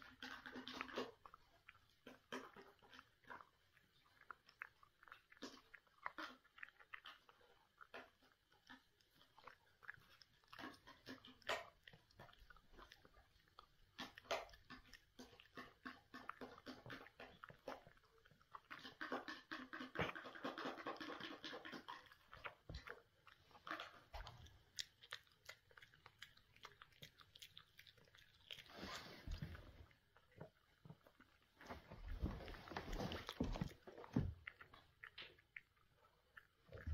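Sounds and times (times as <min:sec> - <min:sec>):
dog crunching dry food: 0:04.3 - 0:29.6.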